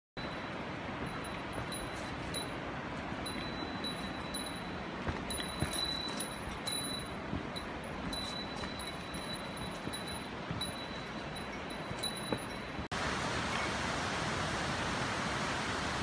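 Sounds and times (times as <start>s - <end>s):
small bell jingling: 0.2s - 2.6s, 3.2s - 12.9s.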